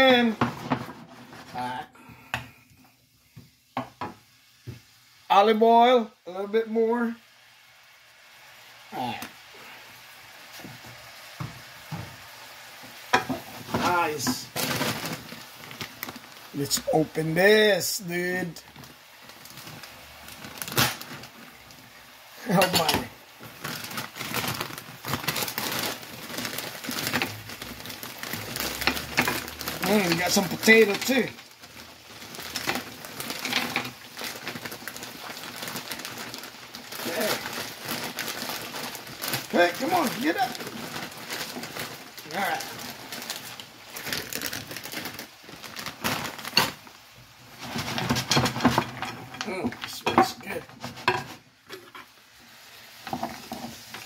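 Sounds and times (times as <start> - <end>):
plastic bag crinkling: 8.6 - 54.0
packaging rustling: 9.2 - 51.9, 52.5 - 54.0
kitchen utensils clicking and knocking: 22.5 - 23.1, 28.6 - 31.4, 33.4 - 34.0.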